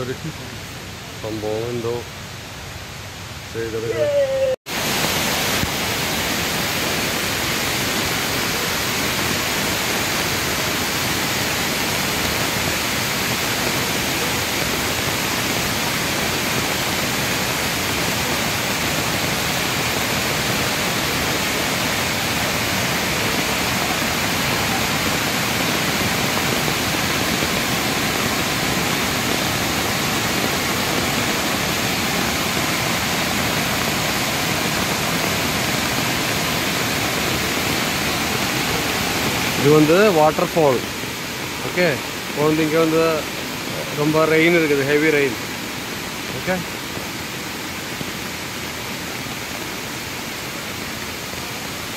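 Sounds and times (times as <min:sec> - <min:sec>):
heavy rain falling: 0:00.0 - 0:51.9
waterfall rushing: 0:00.0 - 0:51.9.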